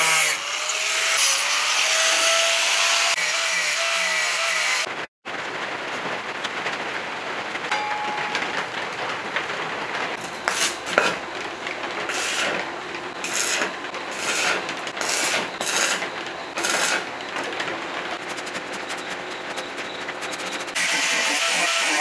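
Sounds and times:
arc welding bursts: 12.1s - 12.6s, 13.2s - 17.1s
steady welding hiss: 12.1s - 12.6s, 13.2s - 17.1s.

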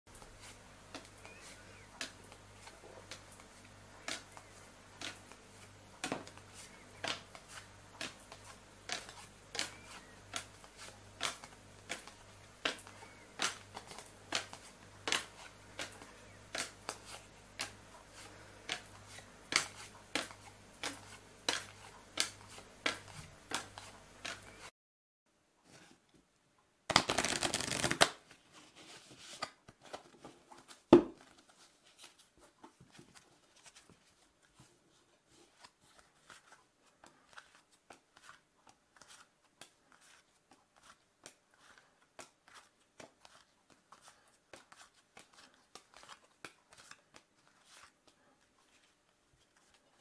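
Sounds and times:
playing cards slapping on table: 7.0s - 17.8s, 26.9s - 28.2s.

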